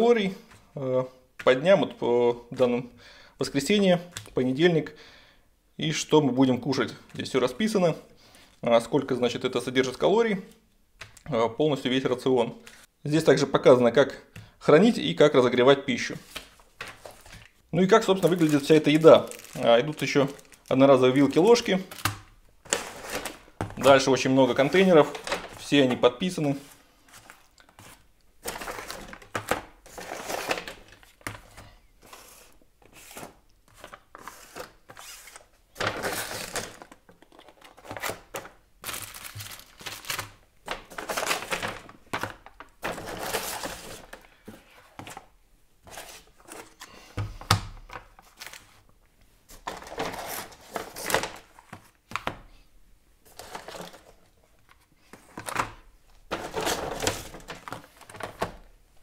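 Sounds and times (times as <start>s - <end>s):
delivery bag rustling: 16.2s - 31.2s, 32.1s - 44.2s
plastic trays clattering on countertop: 28.4s - 31.5s, 55.2s - 58.6s.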